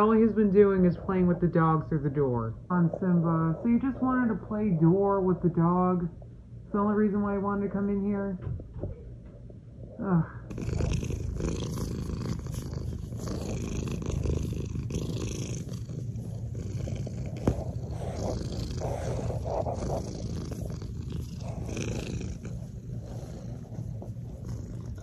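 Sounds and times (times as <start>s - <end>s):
cat purring: 0.0s - 6.2s, 9.7s - 25.0s.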